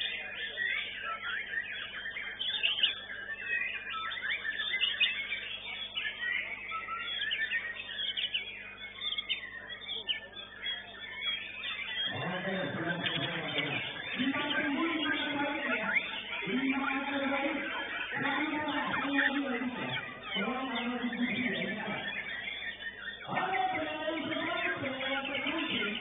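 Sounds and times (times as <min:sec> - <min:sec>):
bird singing whistles and trills: 0:00.0 - 0:26.0.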